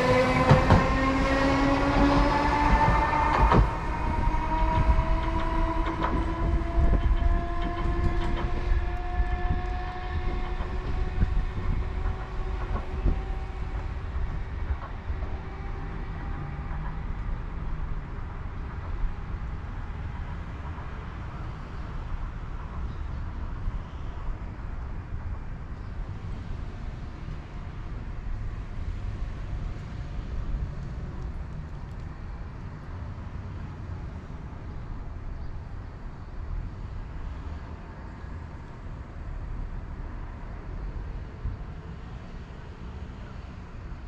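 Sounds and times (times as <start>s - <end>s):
wheels clicking over rail joints: 0.0s - 19.6s
train traction motors whining: 0.0s - 25.6s.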